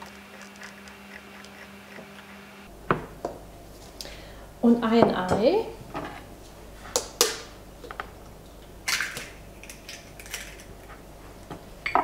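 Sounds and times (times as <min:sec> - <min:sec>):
eggshell crackling: 0:00.0 - 0:02.6.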